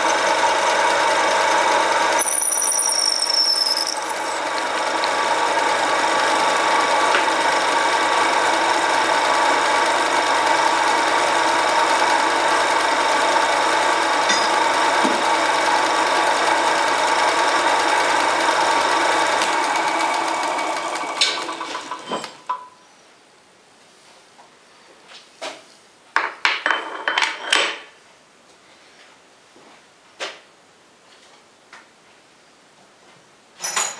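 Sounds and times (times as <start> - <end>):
lathe motor humming and whining: 0.0 - 2.2, 3.9 - 22.2.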